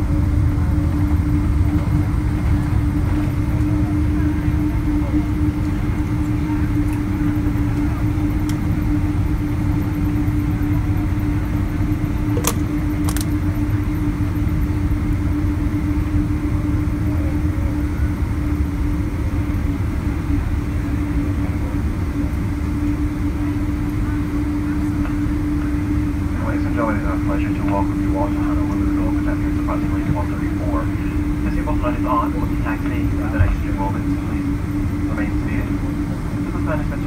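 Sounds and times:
aircraft cabin rumble: 0.0s - 37.0s.

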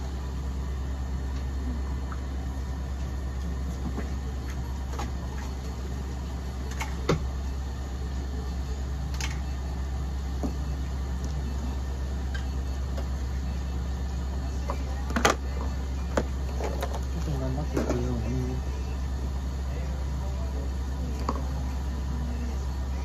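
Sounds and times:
equipment humming: 0.0s - 23.0s.

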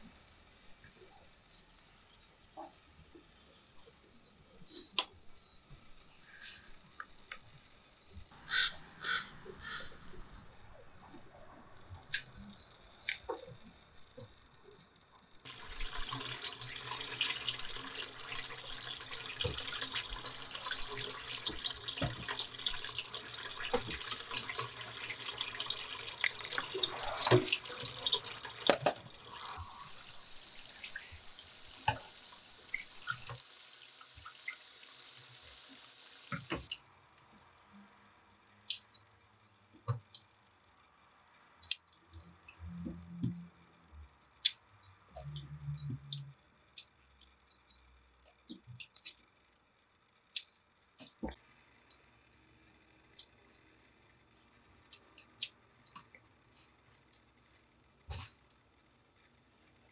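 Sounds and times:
water drips: 15.5s - 34.8s, 44.4s - 49.6s
tap water running into bowl: 15.5s - 36.7s.

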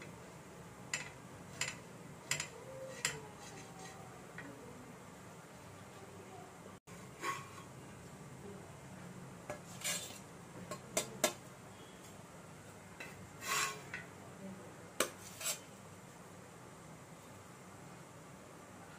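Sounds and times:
metal spatula scraping iron griddle: 1.0s - 4.0s, 7.1s - 7.7s, 9.6s - 10.3s, 13.0s - 14.0s, 15.0s - 15.8s.

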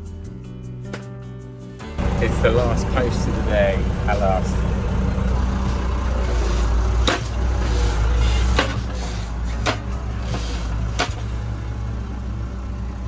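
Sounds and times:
tractor engine running: 1.8s - 13.0s
post driver hammering fence post: 7.0s - 7.5s.

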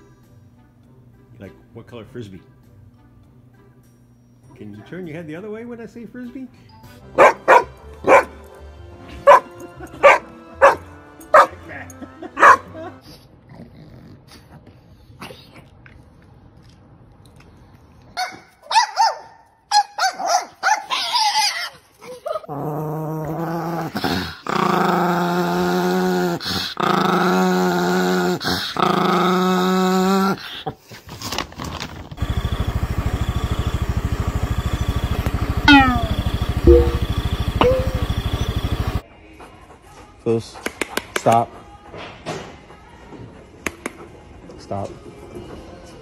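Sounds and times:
small dog growling: 13.4s - 15.8s, 22.2s - 30.8s
steady engine hum: 32.2s - 39.0s.

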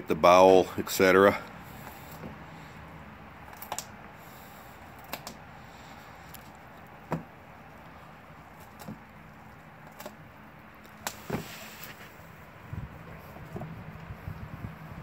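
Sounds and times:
dog crunching frozen bone: 4.9s - 12.2s.

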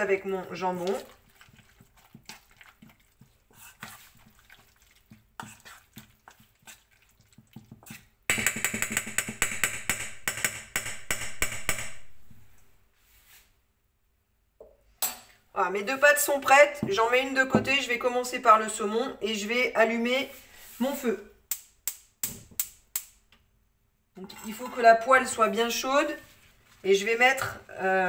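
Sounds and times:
utensil scraping a bowl: 0.0s - 9.1s, 24.2s - 26.3s
batter stirred with clinking strokes: 0.0s - 9.8s, 24.2s - 27.6s.

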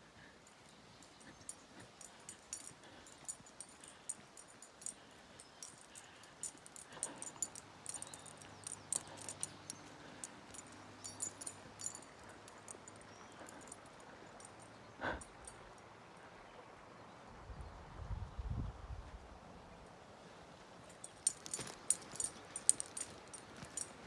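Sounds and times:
dog collar tags jingling: 0.4s - 15.7s, 20.9s - 24.0s.

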